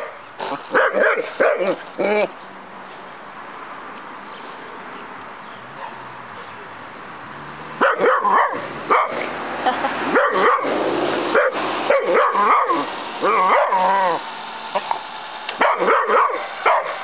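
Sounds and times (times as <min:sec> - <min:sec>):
dog barking: 0:00.0 - 0:01.8, 0:05.8 - 0:06.5, 0:07.8 - 0:09.2, 0:10.2 - 0:10.7, 0:11.3 - 0:13.8, 0:15.6 - 0:17.0
dog whining bark: 0:00.0 - 0:02.3, 0:07.8 - 0:09.2, 0:10.2 - 0:14.2, 0:15.6 - 0:17.0.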